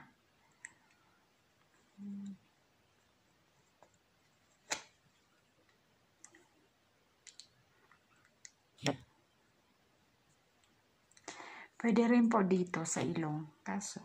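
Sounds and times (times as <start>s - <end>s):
faint clicks and taps: 7.2s - 9.1s.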